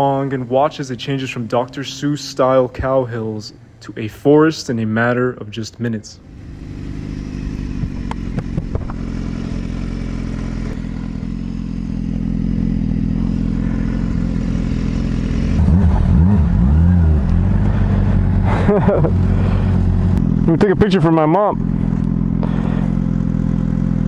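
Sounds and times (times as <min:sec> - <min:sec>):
motorcycle engine running: 0:06.2 - 0:24.0.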